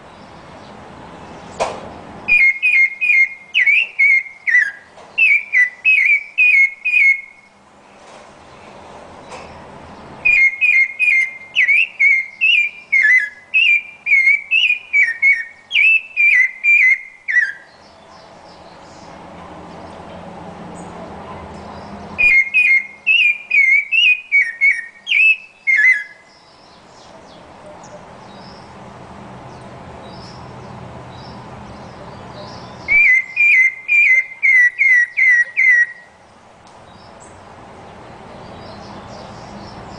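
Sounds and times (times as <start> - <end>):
thrush singing whistled phrases: 2.3 - 7.5, 10.2 - 17.7, 22.2 - 26.3, 32.8 - 36.2.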